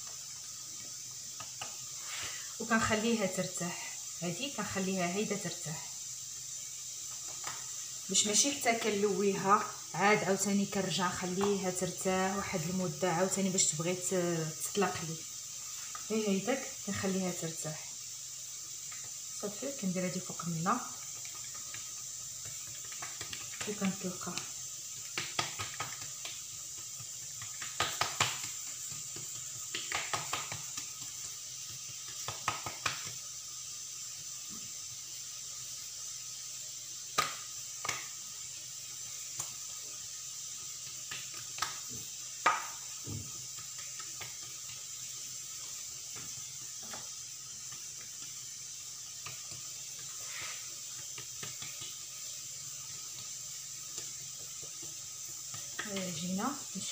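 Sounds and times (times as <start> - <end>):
steady hiss: 0.0 - 56.9
hands slapping dough: 11.2 - 11.7, 20.8 - 33.3, 37.1 - 38.2, 39.2 - 39.8, 40.6 - 56.9.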